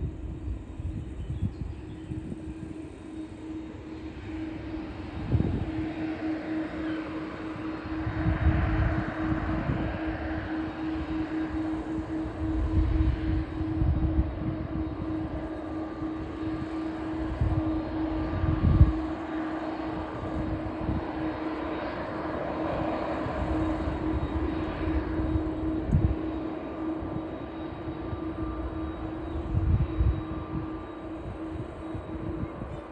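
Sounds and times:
distant jet engines droning: 0.0 - 32.9
wind buffeting microphone: 0.0 - 32.9.

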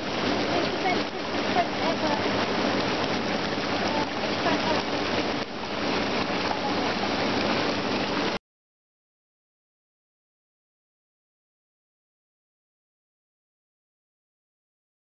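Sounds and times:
hot tub jets bubbling: 0.0 - 8.4.

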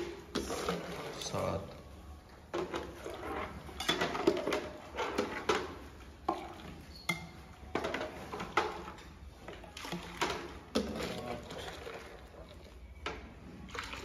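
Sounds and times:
milk splashing and pouring: 0.0 - 1.9, 2.5 - 6.9, 7.7 - 14.0
metal jug knocking on buckets: 2.5 - 11.9.

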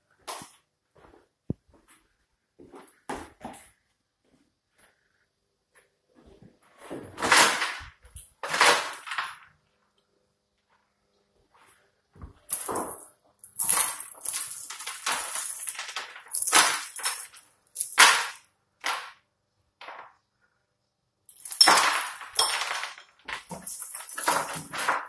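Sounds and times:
metal chains jingling: 12.5 - 18.1, 21.3 - 25.0.

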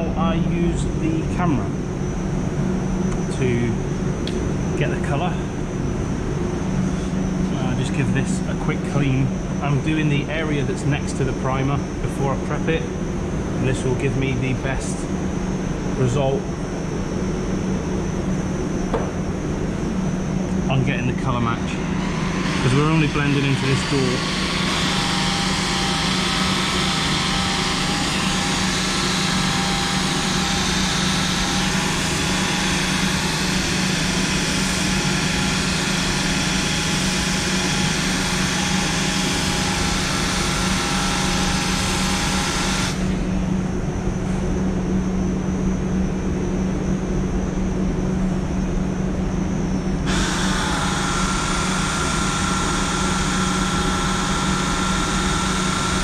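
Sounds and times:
rotary polisher motor whining: 22.0 - 43.1, 50.1 - 56.0.

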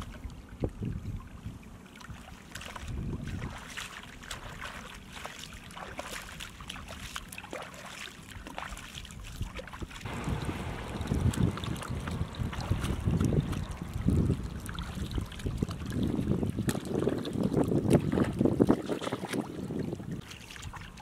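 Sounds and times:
wind rumble on microphone: 0.0 - 3.7, 9.0 - 21.0
water sloshing and splashing: 0.0 - 21.0.

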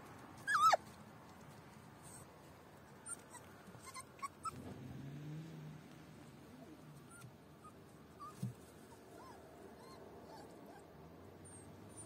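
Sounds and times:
dog whining: 0.5 - 0.8, 3.0 - 4.6, 9.2 - 12.0.

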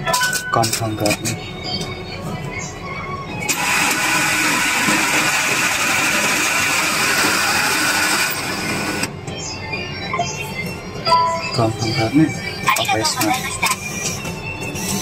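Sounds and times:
machine mechanism whirring: 3.4 - 9.2.

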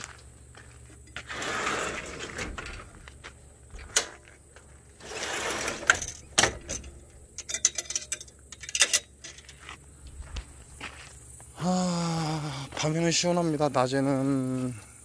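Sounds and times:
rustling and scraping: 0.0 - 11.4
metallic clicks and rattles: 5.8 - 9.6.

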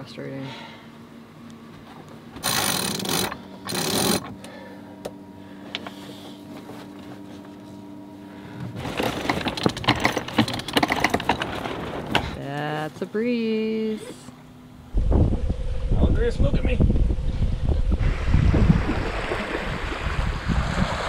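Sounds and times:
winch ratcheting clicks: 2.4 - 4.4
rushing noise bursts: 14.9 - 21.0.

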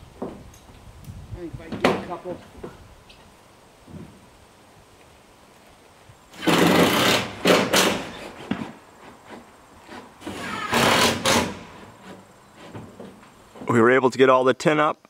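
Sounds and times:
cordless drill driving screws: 6.4 - 8.3, 10.2 - 11.9.

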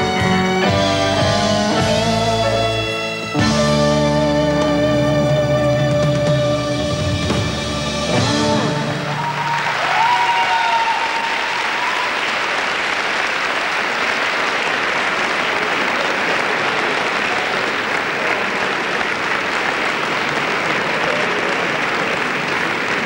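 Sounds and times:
held note of live music: 0.0 - 9.7
audience applauding: 8.6 - 23.0.

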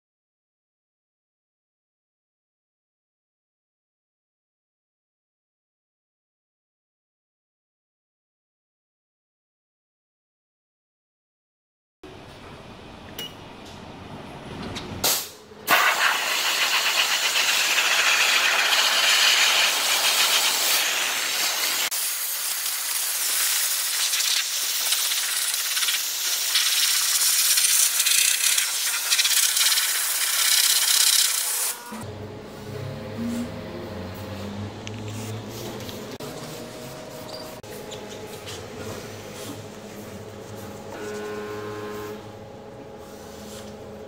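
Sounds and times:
steam cleaner spraying hiss: 15.7 - 31.7.

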